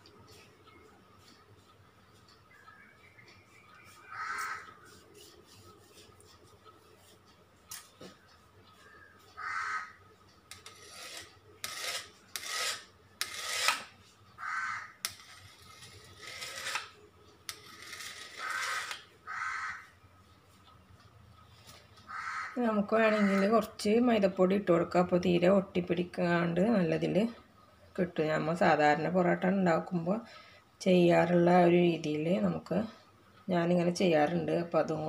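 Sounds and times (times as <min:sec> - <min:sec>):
crow cawing: 0:04.1 - 0:04.8, 0:08.9 - 0:10.0, 0:14.4 - 0:15.0, 0:18.4 - 0:19.9, 0:22.1 - 0:22.6
knife scraping dough on stone: 0:10.5 - 0:14.0, 0:15.1 - 0:19.1.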